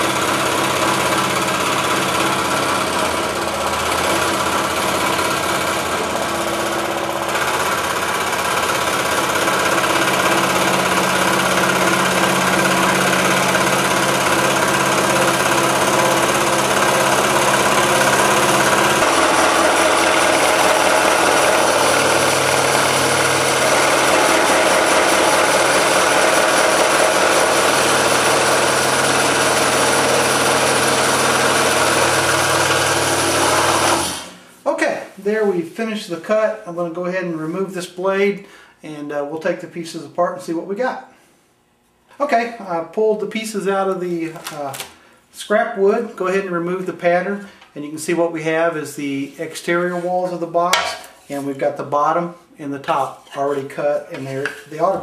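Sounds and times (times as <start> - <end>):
scroll saw cutting wood: 0.0 - 34.4.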